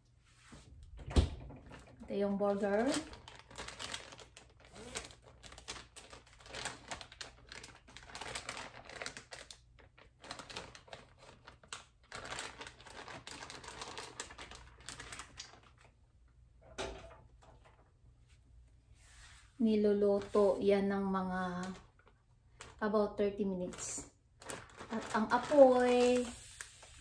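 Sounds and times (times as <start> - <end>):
plastic bag crinkling: 1.6 - 16.0, 19.8 - 27.0.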